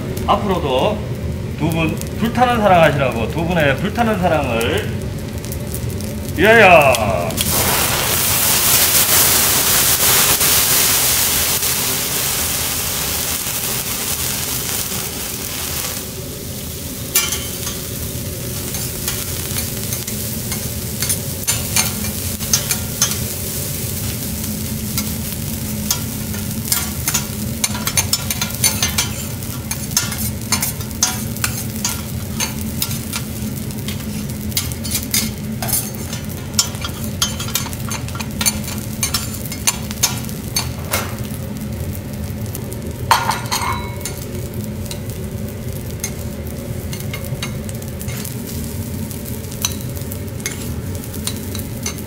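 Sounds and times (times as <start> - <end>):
rice sizzling on a griddle: 0.0 - 52.0
metal spatula scraping a griddle: 25.9 - 40.7, 50.4 - 52.0.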